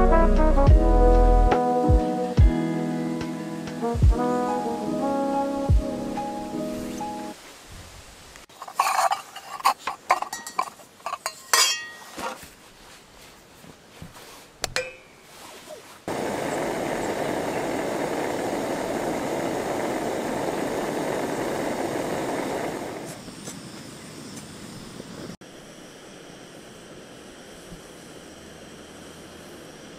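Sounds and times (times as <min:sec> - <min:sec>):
kettle boiling with hissing: 0:08.4 - 0:12.0, 0:16.1 - 0:29.9
metal cookware clinking: 0:08.5 - 0:12.3, 0:14.8 - 0:15.2.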